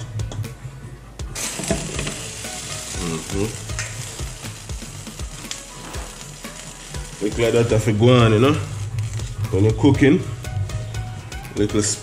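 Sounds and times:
water boiling and bubbling: 1.4 - 9.9.

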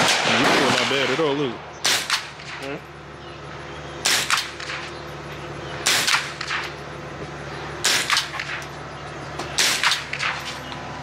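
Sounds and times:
rifle shots cracking: 0.0 - 1.2, 1.8 - 2.6, 4.0 - 4.9, 5.8 - 6.8, 7.8 - 8.6, 9.6 - 10.4.

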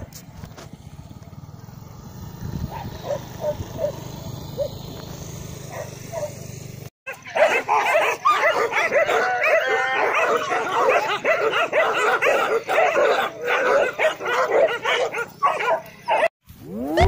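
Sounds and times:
dogs barking and yelping: 2.4 - 6.5, 7.1 - 17.0
dogs whining: 2.6 - 5.0, 5.7 - 6.4, 7.1 - 17.0.

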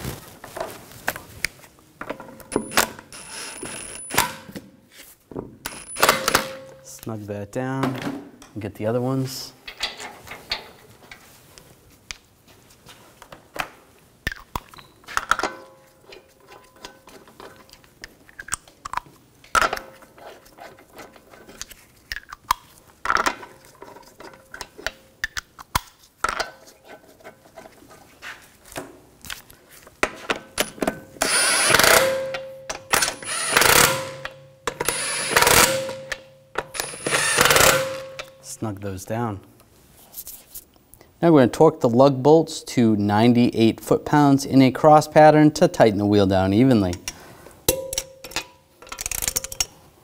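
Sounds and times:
cordless power tool bursts: 31.2 - 32.3, 32.9 - 36.0, 36.7 - 38.2
metallic clicks of bolts threaded: 46.9 - 49.8.

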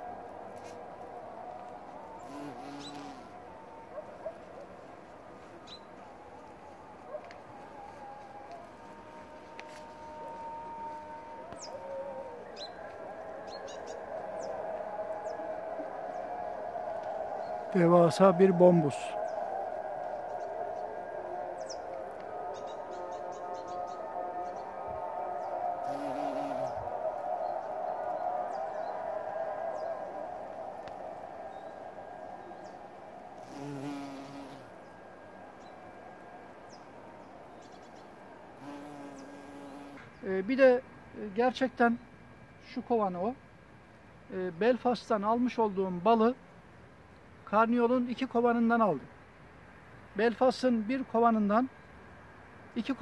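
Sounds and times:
bumblebee buzzing: 2.2 - 3.4, 25.8 - 26.8, 33.4 - 34.7, 38.6 - 40.1.

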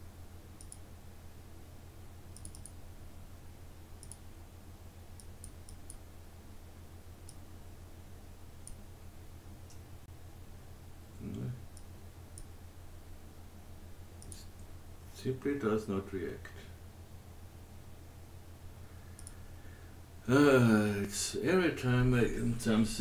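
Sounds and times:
steady low hum: 0.0 - 23.0
computer mouse clicking: 0.6 - 0.9, 2.3 - 2.8, 4.0 - 4.2, 5.2 - 6.0, 7.2 - 7.4, 11.7 - 12.5, 14.2 - 14.7, 19.1 - 19.4.

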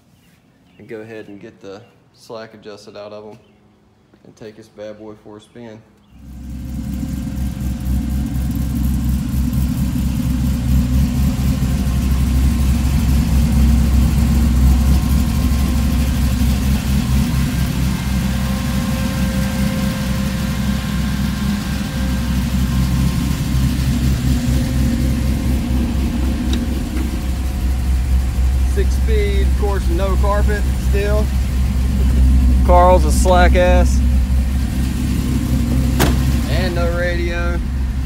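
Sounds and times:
engine idling with low exhaust rumble: 6.0 - 38.0.

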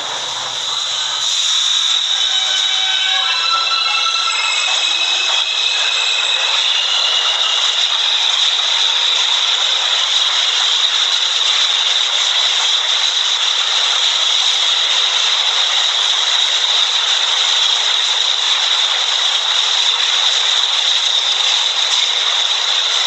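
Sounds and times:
subway train wheels on rails: 0.0 - 23.0
high ringing: 0.8 - 9.1.

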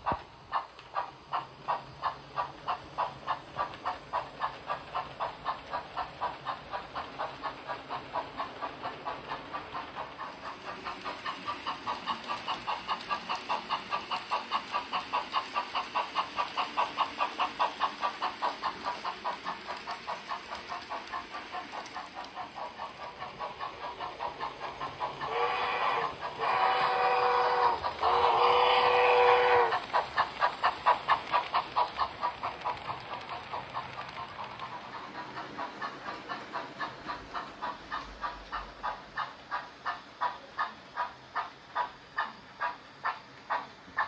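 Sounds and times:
rhythmic steam chuffs: 0.0 - 44.0
steady steam hiss: 0.0 - 44.0
steam whistle: 25.3 - 29.8.

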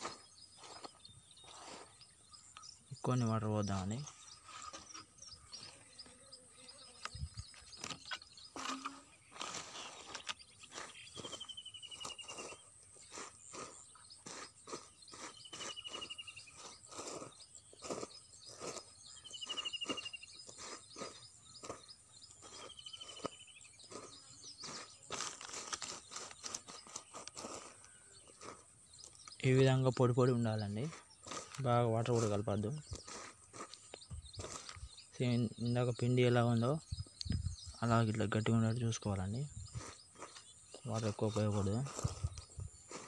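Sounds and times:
high insect drone: 39.3 - 40.3.

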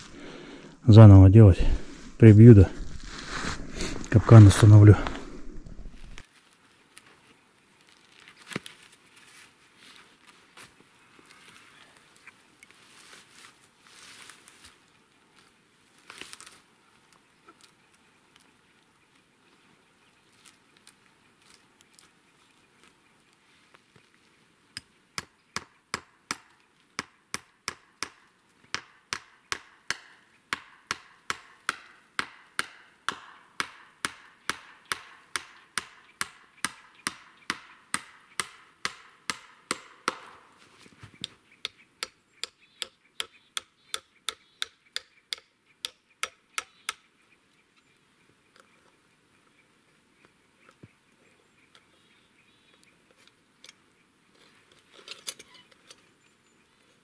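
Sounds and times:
hammering nails into wood: 25.2 - 40.4.

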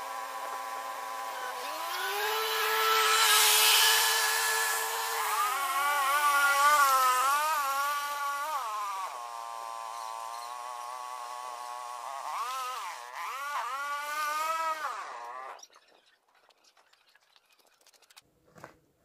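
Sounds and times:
drone propellers whining: 1.4 - 8.7.

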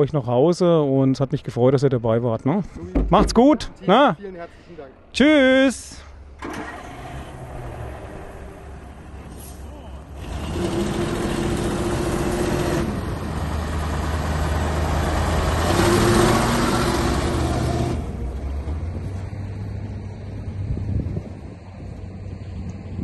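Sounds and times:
truck engine driving past: 6.2 - 23.0.

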